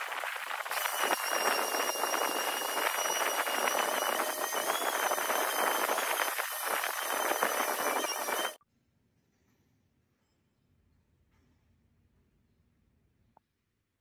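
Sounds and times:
high-pitched squeal: 0.0s - 8.6s
sanding sponge scrubbing wheel: 0.0s - 8.6s.

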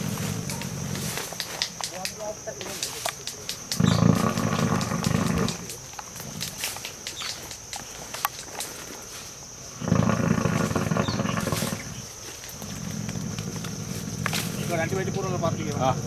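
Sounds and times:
elephant rumbling growl: 0.0s - 1.6s, 3.6s - 6.6s, 9.7s - 16.0s
brush crackling: 0.0s - 16.0s.

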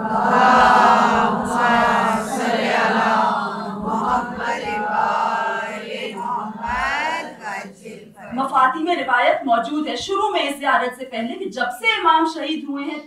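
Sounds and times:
person chanting religious recitation: 0.0s - 8.4s.

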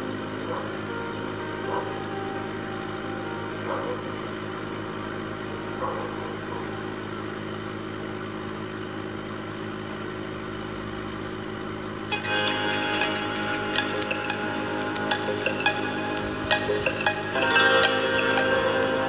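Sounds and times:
music: 0.0s - 6.2s, 12.1s - 19.0s.

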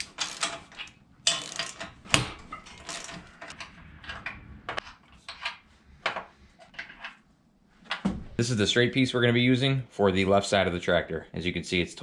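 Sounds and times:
metal hardware clinking: 0.0s - 5.6s.

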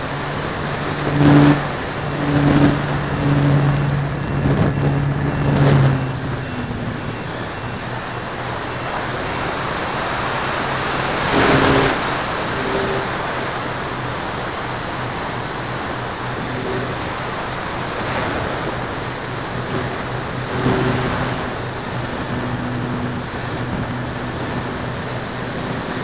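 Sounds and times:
wind rushing over microphone: 0.0s - 13.5s
model plane propeller humming: 0.0s - 26.0s.

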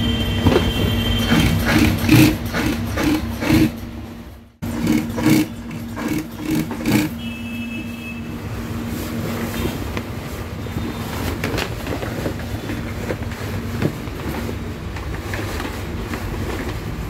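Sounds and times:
steady mechanical hum: 0.0s - 17.0s
sewing machine stitching: 1.1s - 4.0s, 4.6s - 7.3s.

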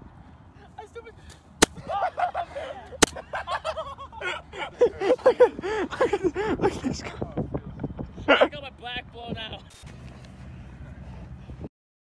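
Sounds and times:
sharp smacks: 1.3s - 1.8s, 3.0s - 3.2s.

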